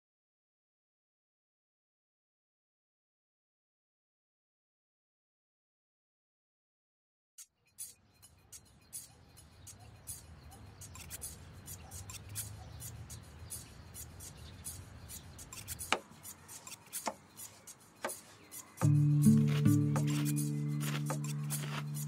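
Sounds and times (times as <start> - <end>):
knife cutting lettuce on board: 15.5 - 22.0.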